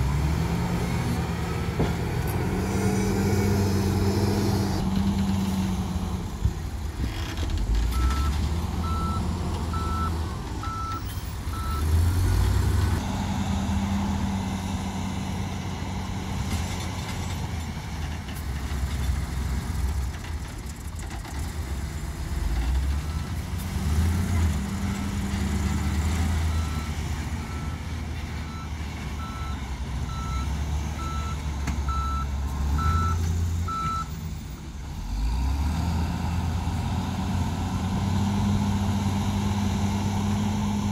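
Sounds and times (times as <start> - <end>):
diesel truck engine revving: 0.0 - 20.0, 21.4 - 40.9
reversing alarm beeping: 8.0 - 12.3, 28.4 - 34.1.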